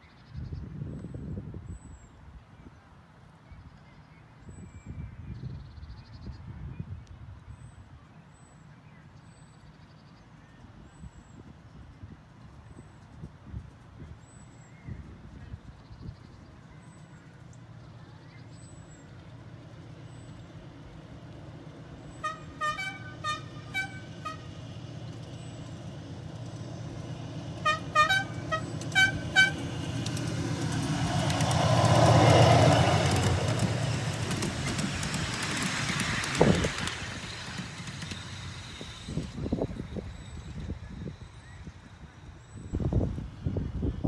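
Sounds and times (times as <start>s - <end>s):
train wheels on rails: 17.0s - 44.0s
locomotive horn toots: 22.1s - 24.7s, 27.6s - 29.8s.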